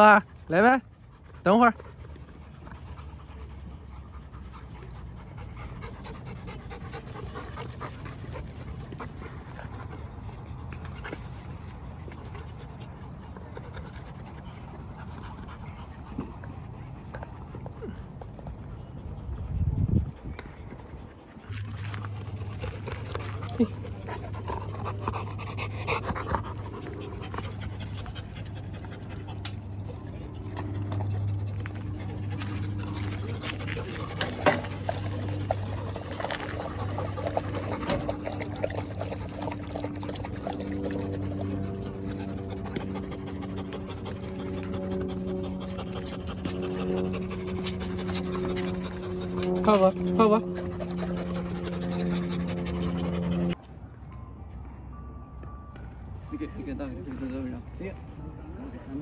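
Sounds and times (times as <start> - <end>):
dogs panting: 0.0 - 53.6
steady low rumble: 18.8 - 54.0.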